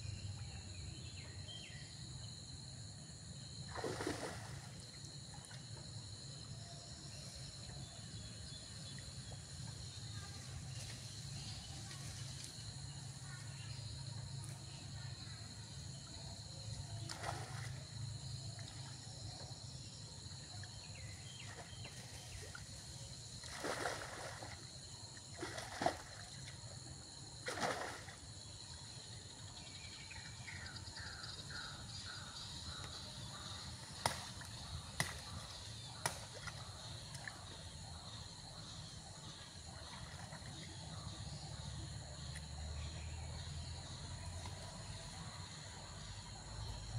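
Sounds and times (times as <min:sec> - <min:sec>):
water splashing and sloshing: 0:03.7 - 0:05.8, 0:17.0 - 0:18.0, 0:21.2 - 0:26.8, 0:27.4 - 0:28.2.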